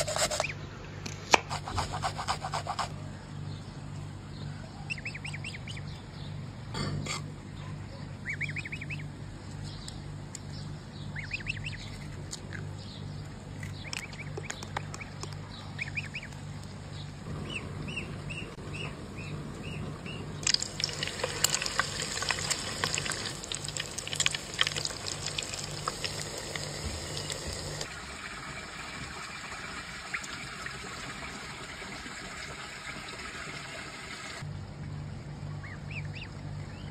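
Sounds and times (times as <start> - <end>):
low pulsing hum: 2.1 - 28.2, 34.4 - 36.9
patties sizzling in hot oil: 20.4 - 27.9.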